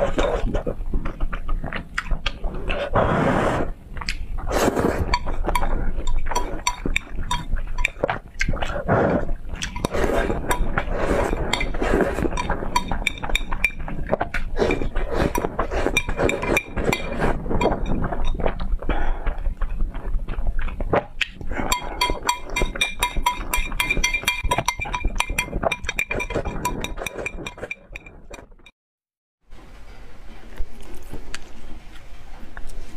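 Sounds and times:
noodles being slurped: 2.1 - 28.0.

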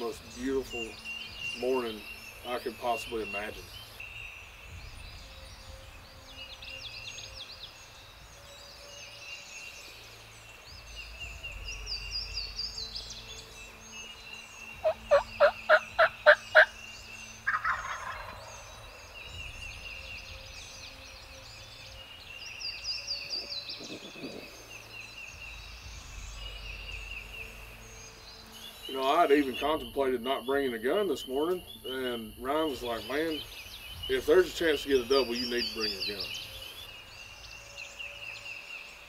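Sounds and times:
songbirds singing: 0.0 - 39.0
wild turkey calling: 14.8 - 19.4.

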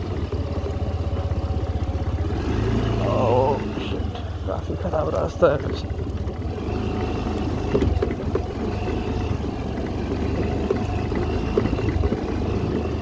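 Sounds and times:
scooter engine running: 0.0 - 13.0
knocks and rattles from bumps: 4.1 - 13.0.

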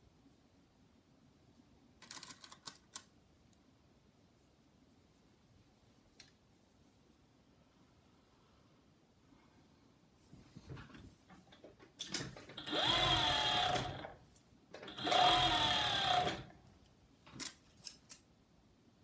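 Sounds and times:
overlock serger running: 12.5 - 14.2, 14.8 - 16.6.

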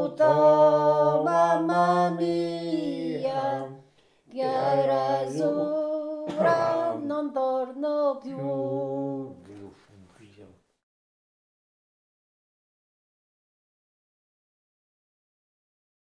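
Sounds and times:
person singing long notes: 0.0 - 9.4.

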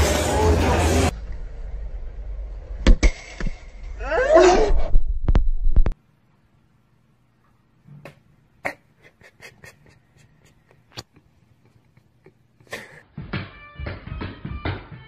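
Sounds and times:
low rumble: 0.5 - 6.0.

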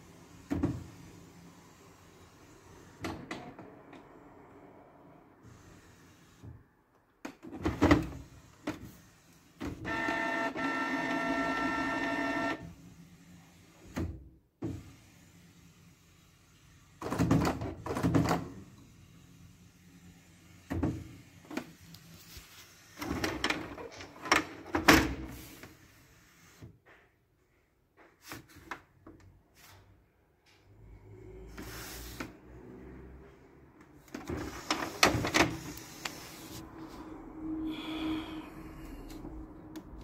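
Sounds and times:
printer whirring and clunking: 0.0 - 4.4, 7.2 - 19.0, 22.8 - 25.7, 33.2 - 36.6
printer motor whine: 9.8 - 12.7.

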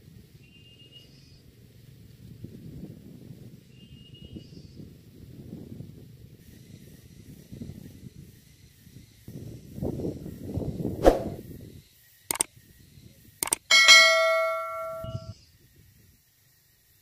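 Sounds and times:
mouse clicks: 13.4 - 13.7
bright bell ding: 13.4 - 15.3
sharp knock: 13.4 - 15.3.

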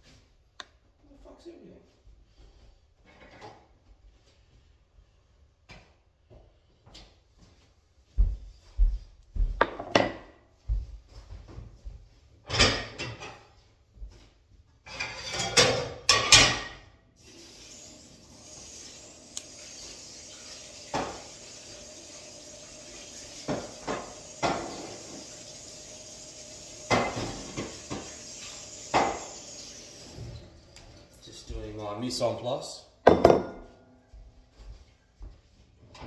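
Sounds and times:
dishes and utensils clanking: 12.5 - 13.6, 14.9 - 16.9, 26.9 - 28.2.

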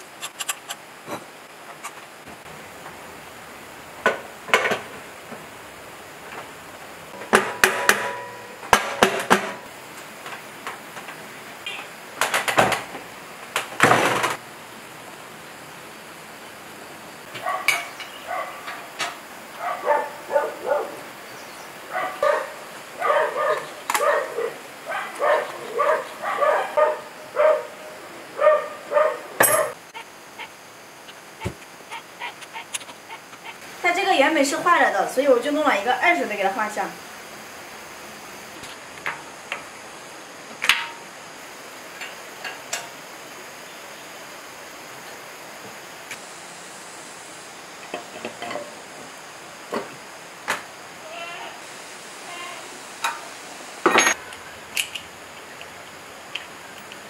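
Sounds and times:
metal clanks and knocks: 7.2 - 9.6
dog barking: 17.4 - 18.9, 19.6 - 21.1, 21.9 - 29.8.

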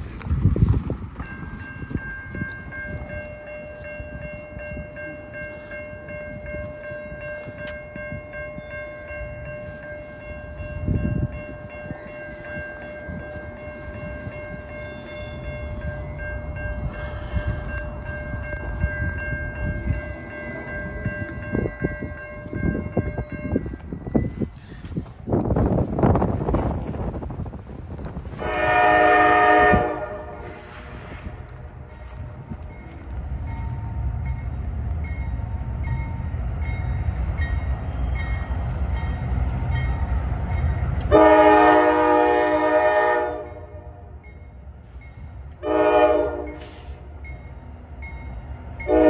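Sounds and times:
train rumbling past: 0.0 - 49.0
locomotive air horn blast: 28.4 - 31.4, 41.1 - 44.0, 45.6 - 47.2.

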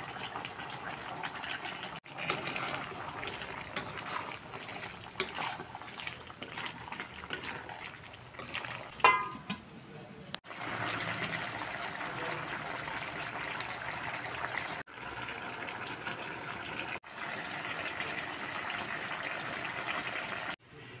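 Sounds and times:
stew bubbling in pan: 0.0 - 9.6, 10.4 - 20.6.

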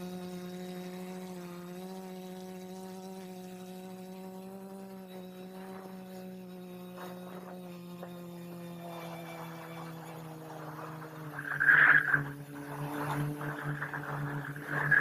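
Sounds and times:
drone propellers humming: 7.0 - 15.0
wind noise: 11.2 - 15.0.

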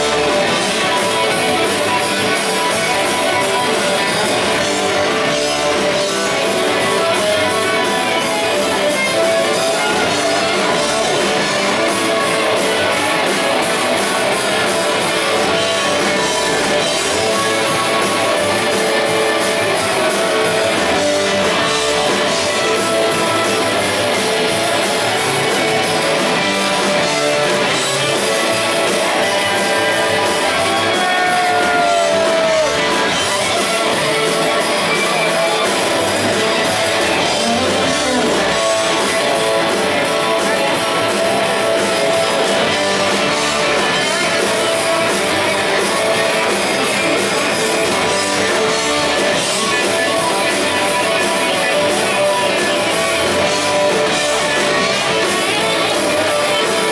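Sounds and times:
live rock band playing loudly: 0.0 - 56.9.

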